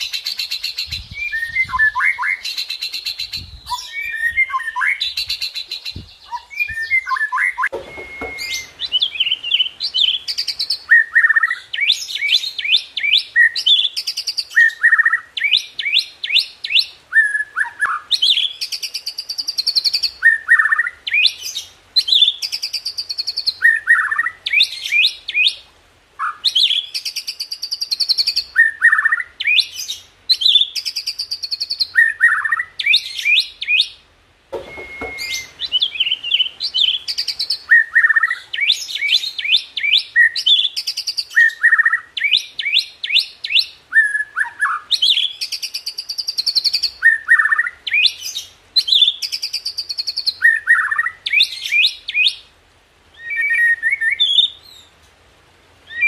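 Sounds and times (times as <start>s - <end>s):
songbird singing: 0.0s - 55.1s, 55.8s - 56.0s
brief knock: 7.7s - 8.7s, 34.5s - 35.6s.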